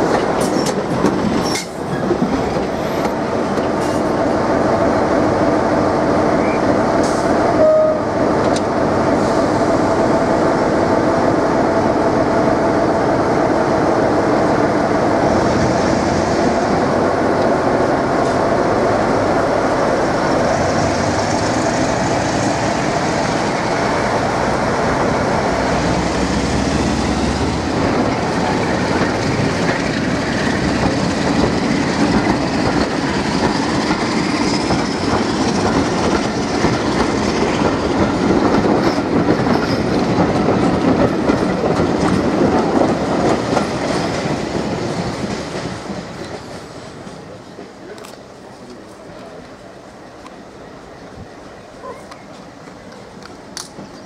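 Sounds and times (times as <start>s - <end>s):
coaches clattering over rail joints: 26.3s - 49.6s.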